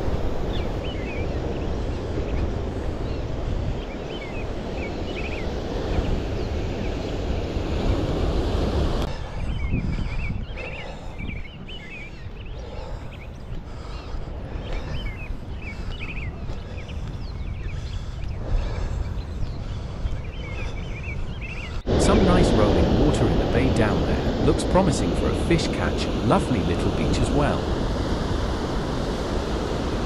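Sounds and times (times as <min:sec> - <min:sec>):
surf on rocky shoreline: 0:00.0 - 0:09.7, 0:21.8 - 0:30.0
wind buffeting microphone: 0:00.0 - 0:30.0.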